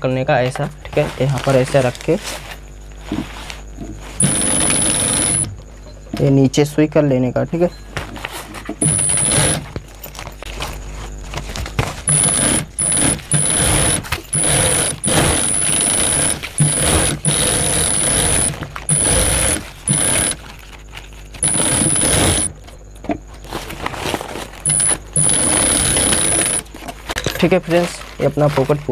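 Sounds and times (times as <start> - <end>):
sewing machine whining: 4.2 - 5.6, 8.8 - 9.8, 12.1 - 22.8, 24.6 - 26.9.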